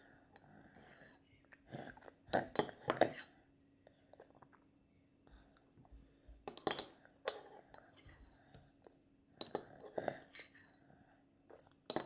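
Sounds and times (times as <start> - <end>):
metal spoon clinking in bowl: 6.5 - 7.5.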